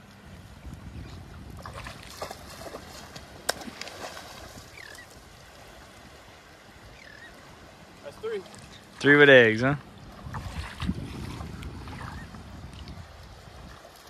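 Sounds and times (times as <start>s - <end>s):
water sloshing and splashing: 0.0s - 6.7s, 7.4s - 14.0s
small splashes: 1.5s - 5.2s, 10.2s - 12.2s.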